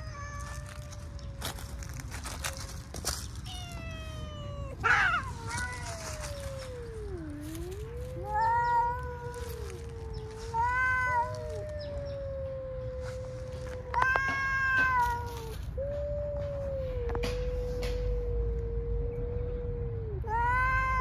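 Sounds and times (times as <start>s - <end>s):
cat high loud yowls: 0.0s - 1.6s, 2.3s - 18.6s, 19.6s - 21.0s
cat low wavering yowl: 0.0s - 21.0s.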